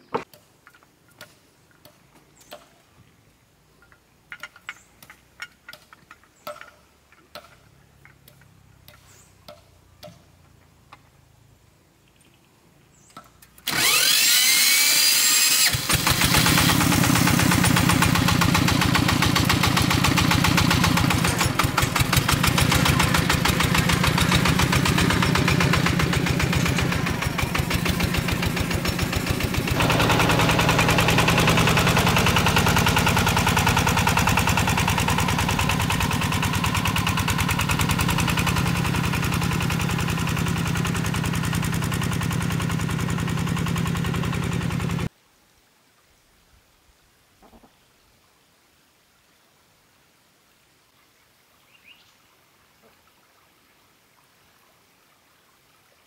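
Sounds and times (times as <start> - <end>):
diesel engine starting: 13.6 - 45.1.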